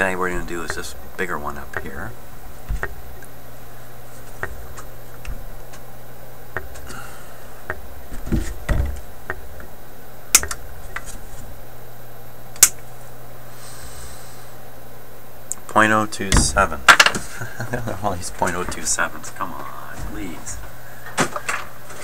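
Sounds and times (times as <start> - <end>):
steady low hum: 0.0 - 22.0
hand tools clicking and tapping: 1.7 - 1.9, 2.7 - 3.3, 10.4 - 11.1
wire cutters snipping: 10.4 - 11.2.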